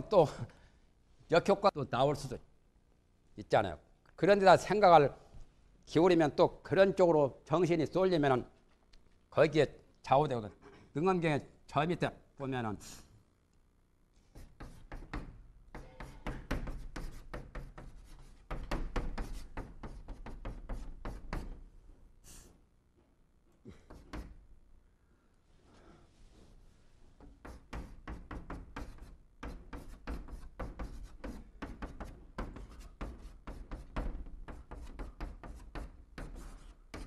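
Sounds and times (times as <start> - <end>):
chalk tapping on blackboard: 14.3 - 21.6, 23.9 - 24.4, 27.2 - 37.0.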